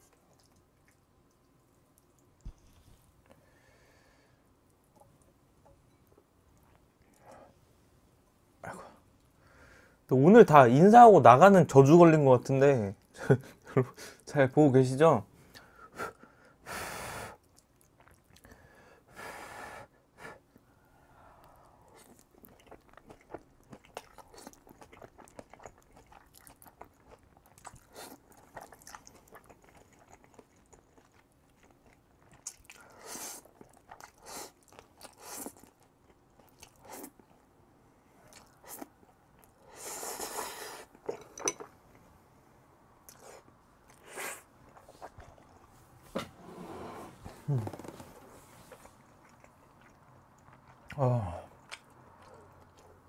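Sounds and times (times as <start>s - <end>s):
wet chewing: 0.0s - 2.6s, 17.4s - 18.6s, 21.9s - 37.4s, 43.1s - 46.0s, 47.6s - 53.0s.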